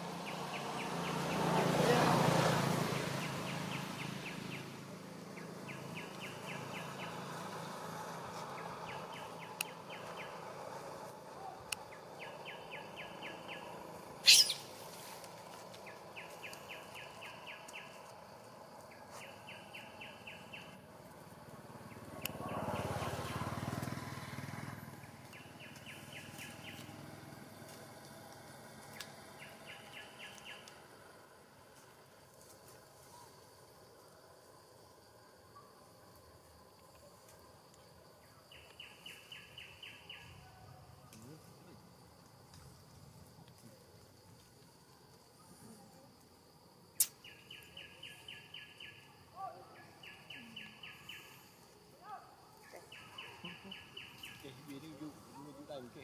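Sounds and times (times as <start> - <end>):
high trilling call: 14.2 - 14.8
sharp crack: 47.0 - 47.3.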